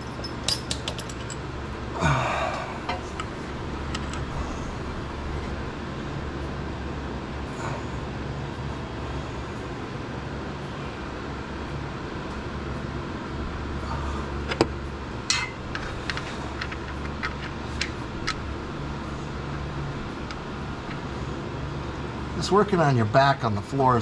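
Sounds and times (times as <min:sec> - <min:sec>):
metal tool clicking and clinking: 0:00.0 - 0:01.4
shop fan humming: 0:00.0 - 0:24.0.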